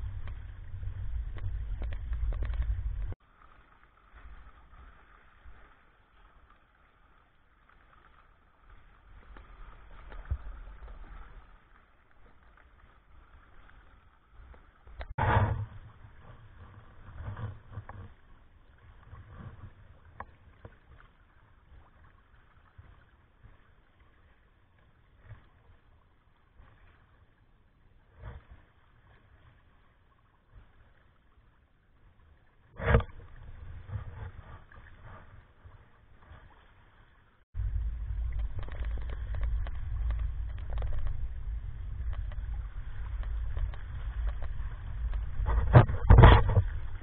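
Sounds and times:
steady low rumble: 0.0 - 3.2, 37.6 - 47.0
water sloshing against a hull: 0.0 - 47.0
waves slapping: 0.0 - 47.0.

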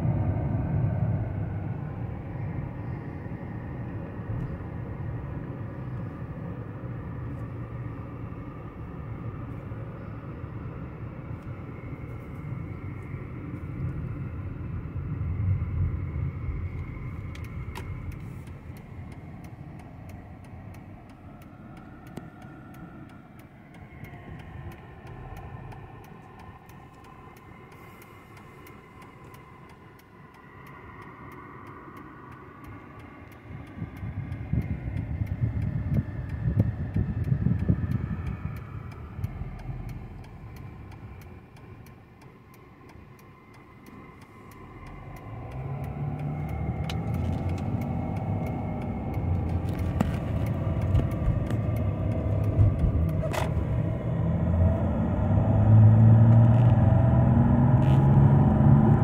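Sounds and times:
car engine and road rumble: 0.0 - 59.0
faint regular ticking: 16.6 - 53.2.

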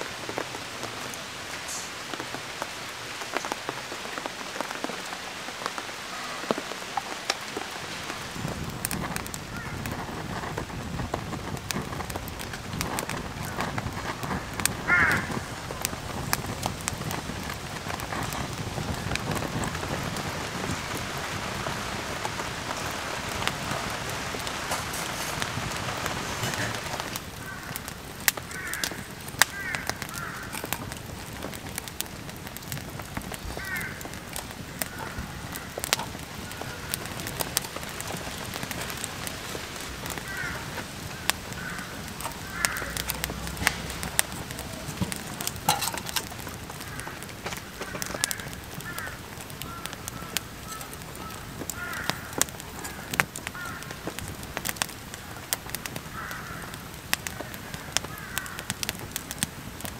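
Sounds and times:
campfire crackling and popping: 0.0 - 59.9
birds calling: 40.0 - 54.1.

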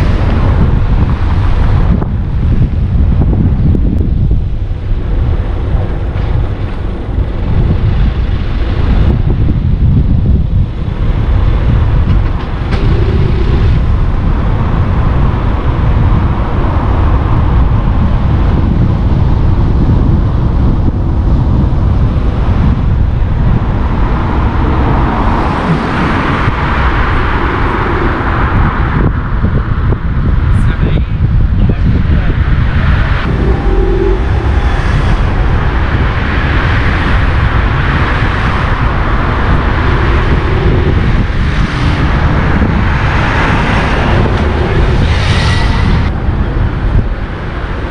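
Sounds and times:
tyres rumbling on road: 0.0 - 47.9
wind buffeting microphone: 0.0 - 47.9
car engine: 33.1 - 46.5.

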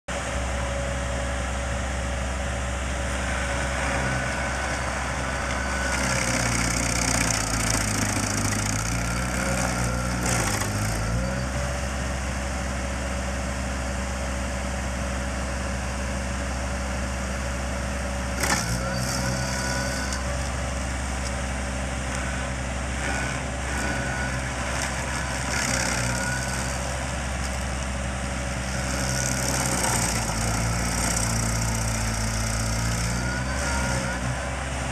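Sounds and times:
stump grinder engine running: 0.1 - 34.9
cutter wheel chewing stump: 3.1 - 11.9, 18.3 - 34.9.

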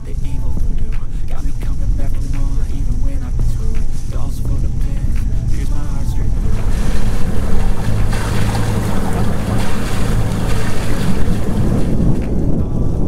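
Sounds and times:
steady low hum: 0.0 - 13.0
wind buffeting the microphone: 0.0 - 13.0
water rushing and churning: 3.7 - 12.6.

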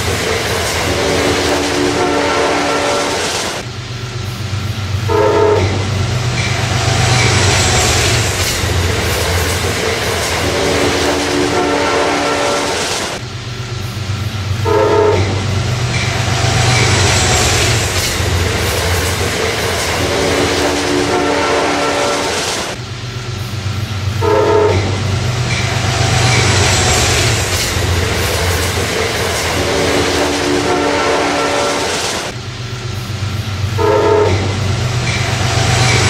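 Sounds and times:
train rumbling: 0.0 - 36.0
train horn blasts: 1.1 - 3.3, 5.1 - 6.0, 10.7 - 12.9, 14.6 - 15.6, 20.3 - 22.4, 24.2 - 25.2, 29.6 - 32.0, 33.8 - 34.7.

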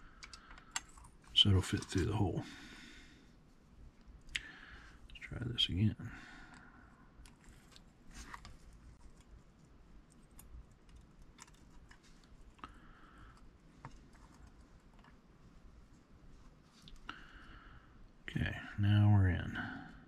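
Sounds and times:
small parts clicking and scraping: 10.0 - 12.7.

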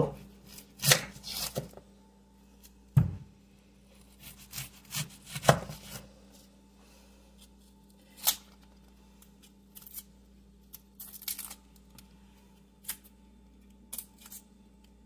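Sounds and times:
knife peeling onion skin: 0.2 - 1.7, 4.0 - 6.0, 7.4 - 11.9, 13.9 - 14.5.

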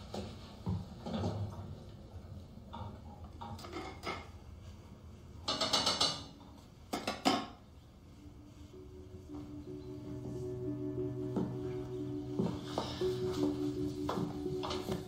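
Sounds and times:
pots and pans clattering: 3.4 - 4.4.

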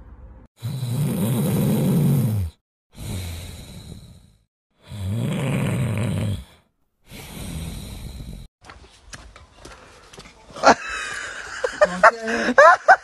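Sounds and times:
dog snoring: 0.6 - 8.5.

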